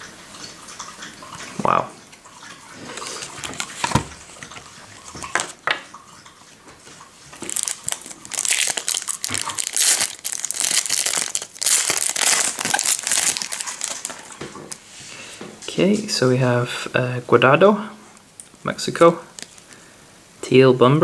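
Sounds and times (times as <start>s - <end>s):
foil wrapper tearing and crinkling: 7.4s - 14.8s, 19.4s - 19.6s.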